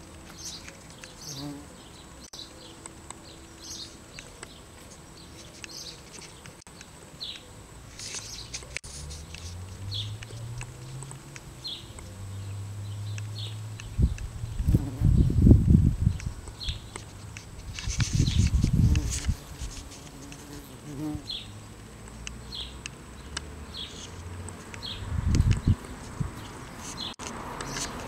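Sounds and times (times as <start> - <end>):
small birds chirping: 0.2 - 28.0
bumblebee buzzing: 1.2 - 1.8, 14.5 - 15.5, 17.9 - 21.4.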